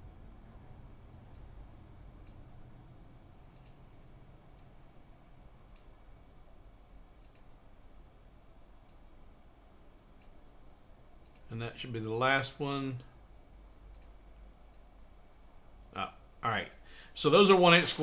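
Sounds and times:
faint low room hum: 0:00.0 - 0:18.0.

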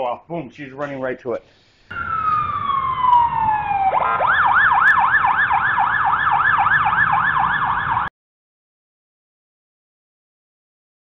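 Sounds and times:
siren wailing and yelping: 0:01.9 - 0:08.1.

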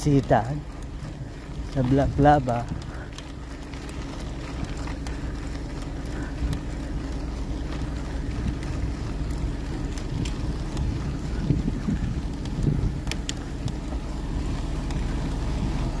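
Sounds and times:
bicycle tyre noise on gravel: 0:00.0 - 0:16.0
wind on microphone: 0:10.0 - 0:13.8.

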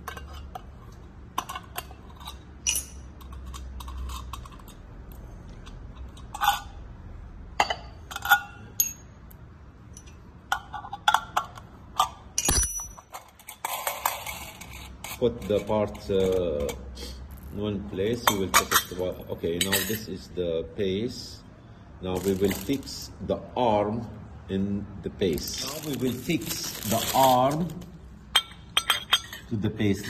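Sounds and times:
glass and metal clinking: 0:01.4 - 0:04.6, 0:07.6 - 0:09.2, 0:09.9 - 0:10.2, 0:12.4 - 0:14.3, 0:19.6 - 0:20.1, 0:28.3 - 0:29.5.

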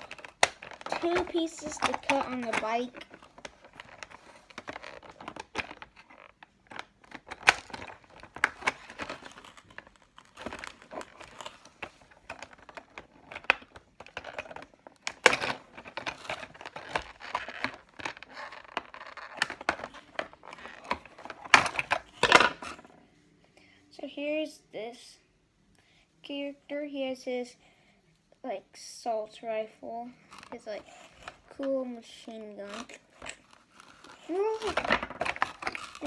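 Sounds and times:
plastic packaging crinkling: 0:00.0 - 0:22.9, 0:32.2 - 0:36.0.

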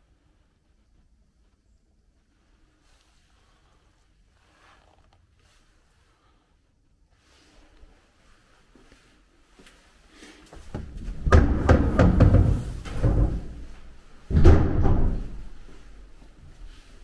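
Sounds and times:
knocks and rattles: 0:10.6 - 0:15.4.

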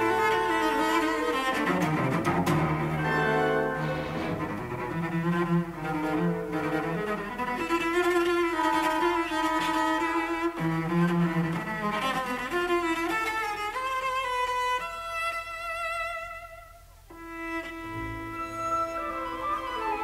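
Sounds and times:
cello playing slow melody: 0:00.0 - 0:20.0.

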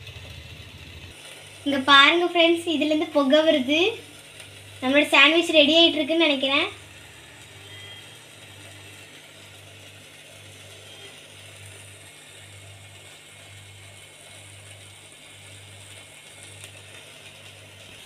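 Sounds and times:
pulsing electrical hum: 0:00.0 - 0:18.0
steam hissing: 0:00.0 - 0:18.0.

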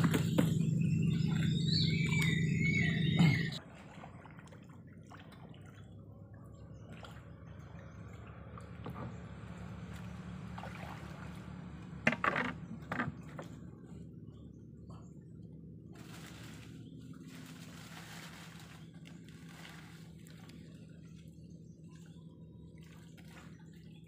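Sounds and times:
loud steady low hum: 0:00.0 - 0:23.8
water lapping and dripping: 0:00.0 - 0:24.0.

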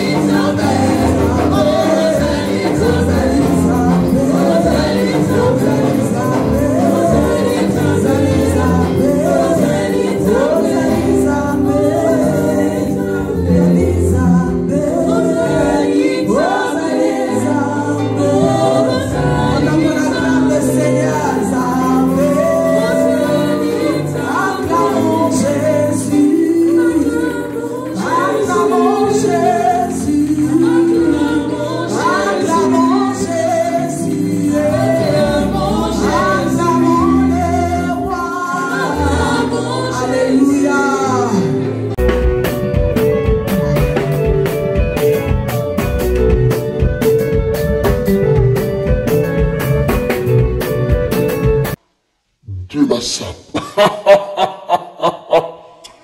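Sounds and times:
women singing together: 0:00.0 - 0:41.4
band accompaniment with bass: 0:00.0 - 0:51.8.

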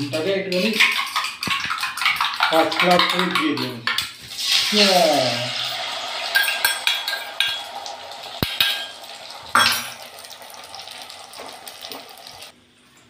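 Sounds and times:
steel bowl and utensils clinking: 0:00.0 - 0:10.8
utensils clattering: 0:06.2 - 0:10.0.

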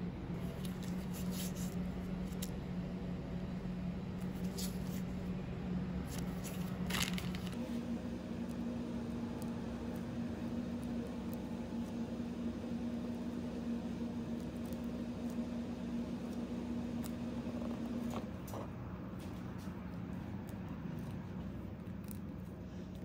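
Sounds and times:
low room hum: 0:00.0 - 0:23.0
plastic piping bag crinkling: 0:06.1 - 0:07.6.

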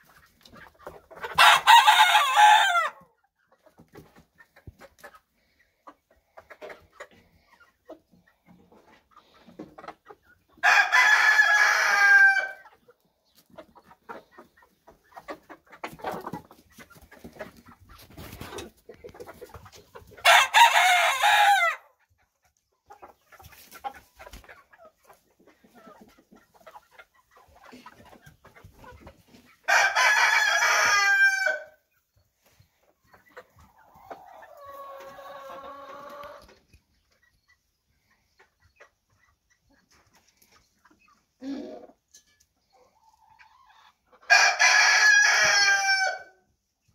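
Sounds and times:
chickens clucking and scratching: 0:00.0 - 0:46.9
rooster crowing: 0:01.4 - 0:03.0, 0:10.6 - 0:12.6, 0:20.2 - 0:21.8, 0:44.3 - 0:46.3.

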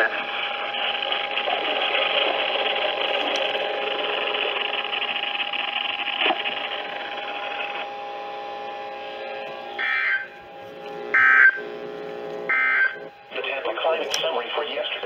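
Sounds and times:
faint steady whine: 0:00.0 - 0:15.0
radio static hiss: 0:06.1 - 0:15.0.

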